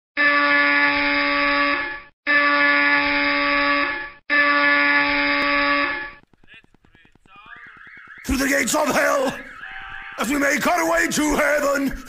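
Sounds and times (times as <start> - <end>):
buzzing horn blasts: 0.2 - 6.2.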